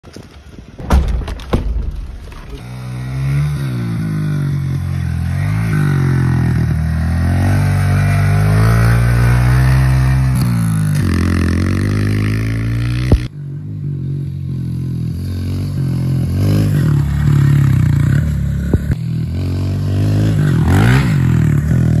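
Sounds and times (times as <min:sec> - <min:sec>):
sharp knocks: 0:00.8 - 0:02.6
dirt bike engine revving: 0:01.6 - 0:22.0.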